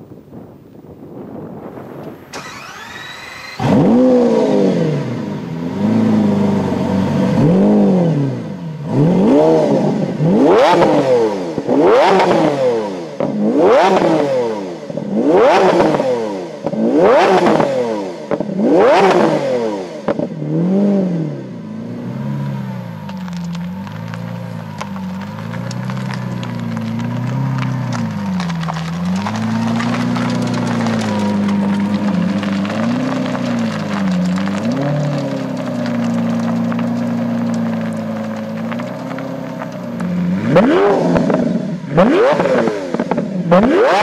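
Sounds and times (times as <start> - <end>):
car engine idling: 0.3 - 9.1, 21.6 - 43.6
car engine revving: 1.3 - 44.0
starter motor whine: 2.0 - 4.3.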